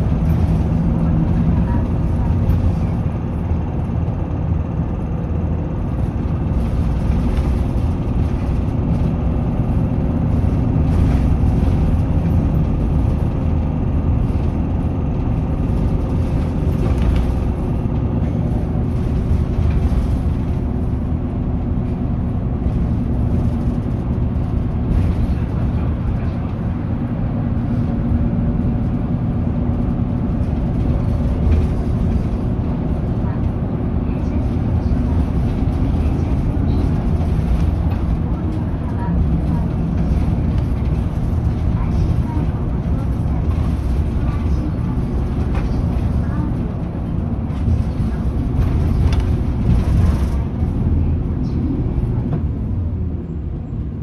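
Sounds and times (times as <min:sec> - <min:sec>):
bus engine drone: 0:00.0 - 0:54.0
tyre and road noise: 0:00.0 - 0:54.0.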